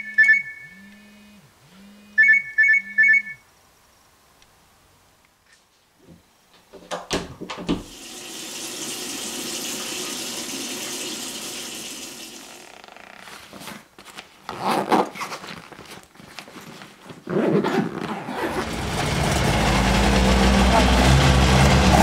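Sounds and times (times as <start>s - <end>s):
water running: 7.7s - 12.9s.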